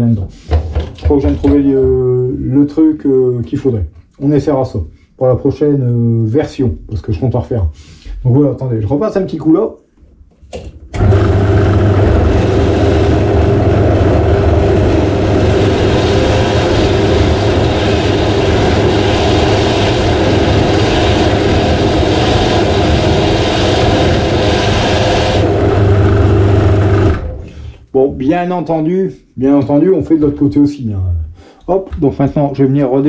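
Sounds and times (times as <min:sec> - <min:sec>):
power tool motor running: 0:11.0 - 0:27.5.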